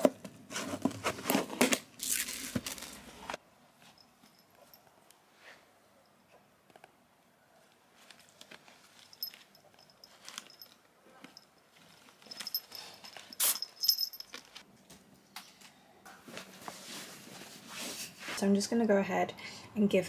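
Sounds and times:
collar bell jingling: 4.0s - 4.9s, 9.1s - 10.8s, 11.4s - 14.5s.

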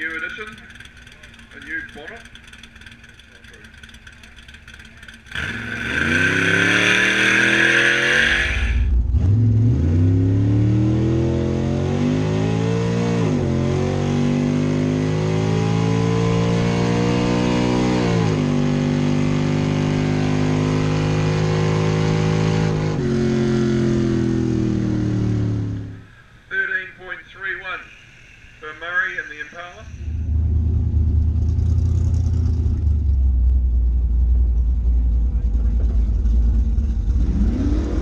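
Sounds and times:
car engine accelerating hard: 0.0s - 26.0s, 30.0s - 38.0s.

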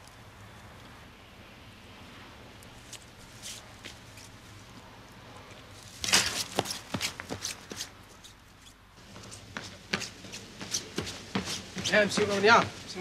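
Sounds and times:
footsteps crunching through dry brush: 5.8s - 8.4s.

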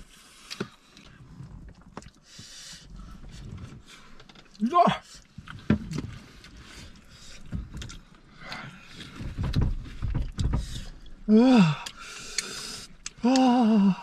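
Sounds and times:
man groaning: 4.6s - 5.0s, 11.3s - 11.9s, 13.2s - 14.0s
man breathing hard and puffing: 6.4s - 14.0s.

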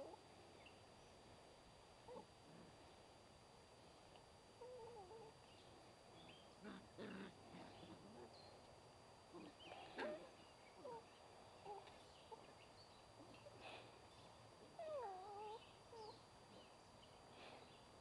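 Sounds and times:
puppies whining and yipping: 14.8s - 16.2s.

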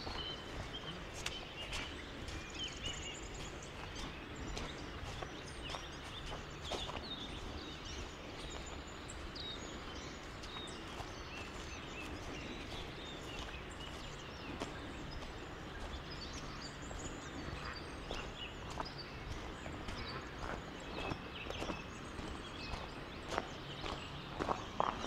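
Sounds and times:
small birds chirping: 0.0s - 25.0s
soft footsteps: 0.0s - 25.0s.

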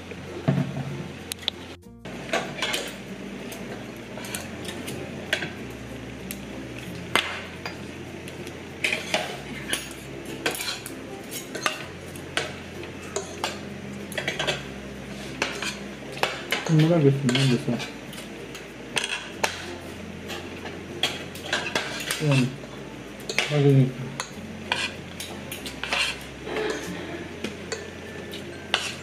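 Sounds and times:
cutlery clinking on a plate: 2.3s - 3.0s, 15.4s - 18.2s, 19.0s - 19.7s, 21.0s - 22.6s, 23.3s - 29.0s.

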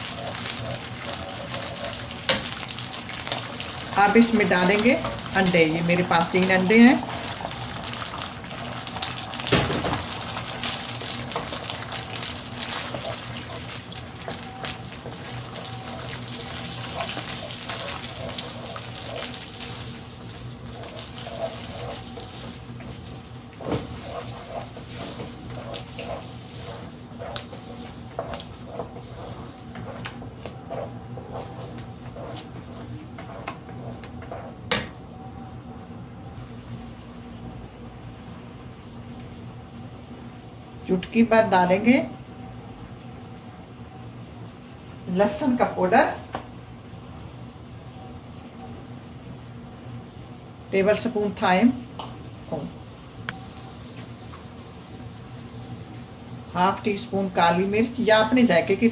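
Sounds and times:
wooden spatula clicking and scraping: 0.0s - 3.6s, 10.4s - 34.6s
eggs sizzling in a frying pan: 0.0s - 34.9s, 44.0s - 58.9s
steady low hum: 0.0s - 58.9s.

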